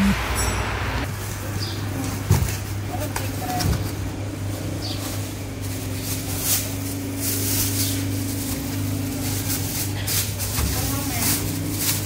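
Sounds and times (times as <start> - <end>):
low mechanical hum: 1.0 - 12.0
plastic bag rustling: 1.1 - 12.0
foam box crinkling: 2.4 - 12.0.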